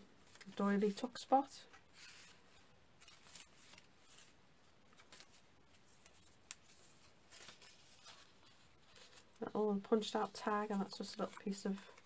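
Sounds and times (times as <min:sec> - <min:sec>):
paper pages rustling: 0:00.2 - 0:09.5.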